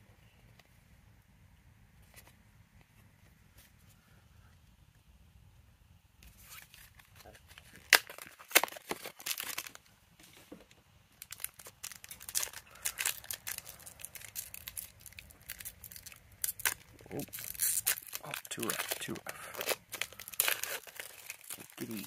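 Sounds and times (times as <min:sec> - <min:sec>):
foil wrapper crinkling: 0:06.4 - 0:09.9, 0:11.2 - 0:22.0.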